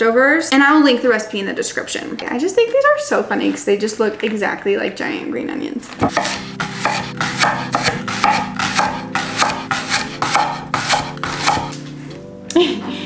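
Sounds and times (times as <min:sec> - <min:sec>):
knife chopping on wooden board: 0:06.0 - 0:11.8.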